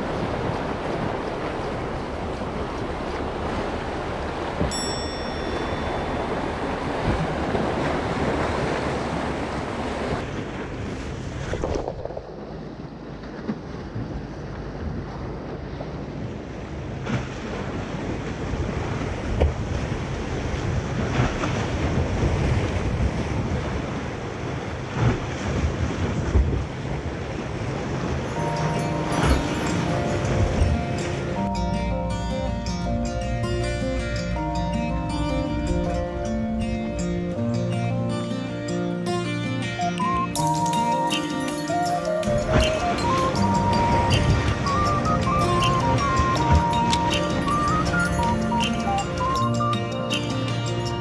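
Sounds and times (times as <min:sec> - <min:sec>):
waves washing against shore: 0:00.0 - 0:38.3, 0:39.1 - 0:51.0
wind buffeting microphone: 0:06.0 - 0:32.0, 0:41.7 - 0:50.0.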